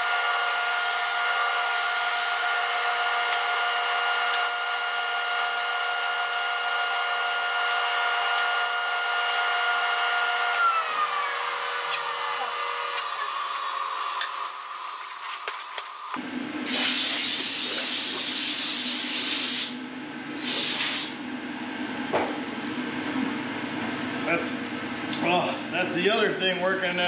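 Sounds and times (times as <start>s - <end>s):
disc sander motor whining: 0.0s - 14.4s.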